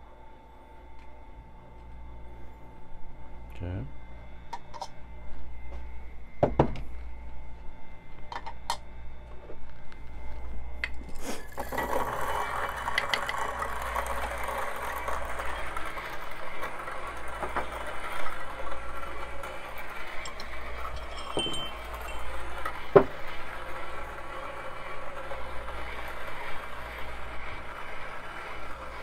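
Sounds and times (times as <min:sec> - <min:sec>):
electric grinder grinding coffee beans: 0:10.9 - 0:29.0.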